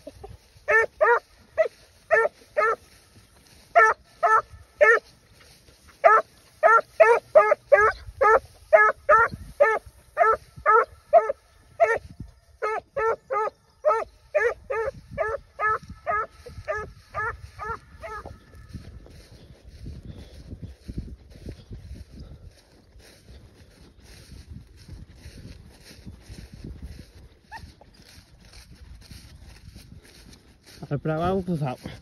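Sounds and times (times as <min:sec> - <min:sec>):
puppy barking: 0:00.7 - 0:02.9, 0:03.7 - 0:05.1, 0:06.0 - 0:12.0, 0:12.6 - 0:18.4.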